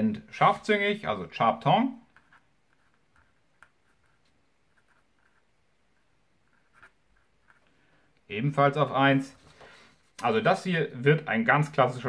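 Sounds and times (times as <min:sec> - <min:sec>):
pen scratching on paper: 0:02.1 - 0:07.6.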